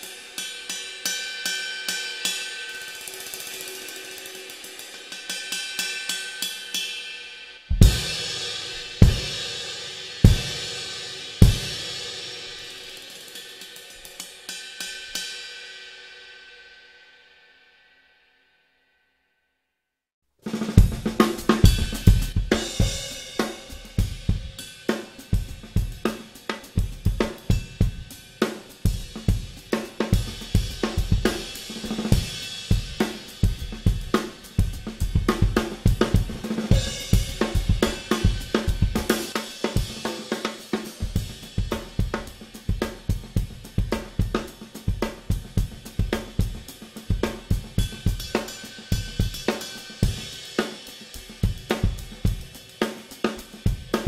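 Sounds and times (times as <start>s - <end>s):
drum kit groove: 0.0s - 1.2s, 7.7s - 15.3s, 20.4s - 54.0s
ride cymbal wash: 0.0s - 17.4s, 20.7s - 54.0s.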